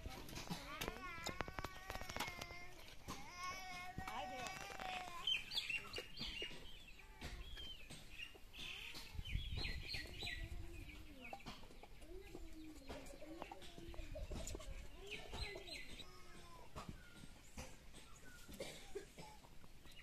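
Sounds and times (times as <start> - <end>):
small birds chirping: 0.0 - 20.0
hens clucking: 4.2 - 18.5.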